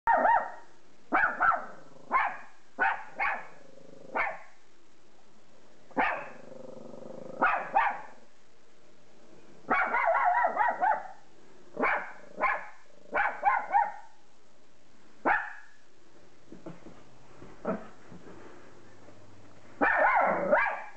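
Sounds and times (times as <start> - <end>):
small dog barking: 0.1 - 4.6, 6.0 - 6.4, 7.4 - 8.2, 9.7 - 11.2, 11.8 - 14.2, 15.2 - 15.8, 19.8 - 20.9.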